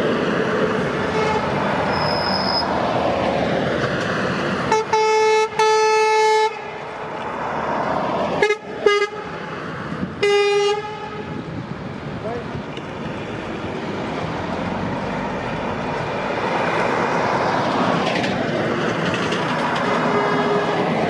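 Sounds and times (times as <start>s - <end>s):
heavy trucks driving past: 0.0s - 21.0s
truck air horn blasts: 1.1s - 1.6s, 4.7s - 6.7s, 8.4s - 9.4s, 10.2s - 11.4s, 19.8s - 20.9s.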